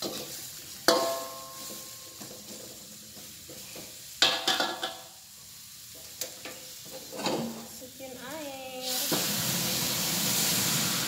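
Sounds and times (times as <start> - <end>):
spatula clanging on pan: 0.0 - 5.1
metal spatula stirring in a wok: 0.0 - 5.2
oil sizzling in a wok: 0.0 - 11.0.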